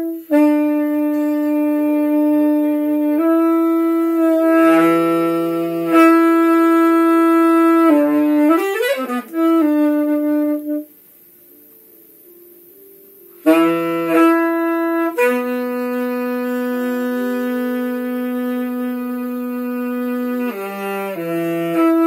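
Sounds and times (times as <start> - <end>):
saxophone playing long notes: 0.0 - 11.0, 13.4 - 22.0.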